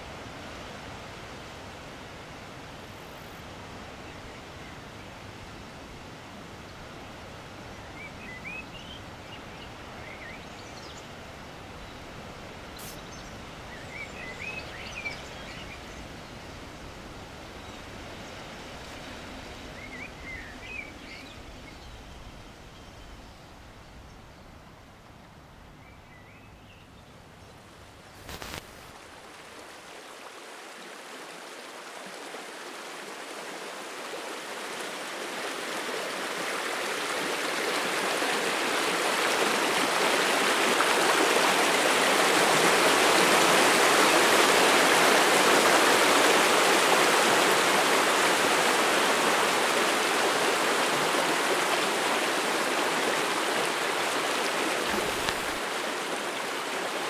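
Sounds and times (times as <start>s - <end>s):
quiet forest ambience: 0.0s - 57.0s
stream rushing over stones: 28.2s - 57.0s.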